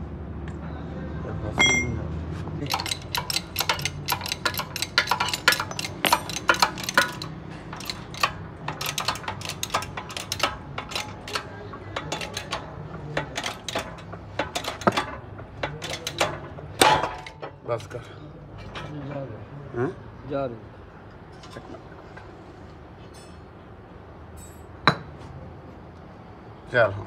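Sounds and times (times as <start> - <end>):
metallic clinks and clicks: 2.6 - 18.0.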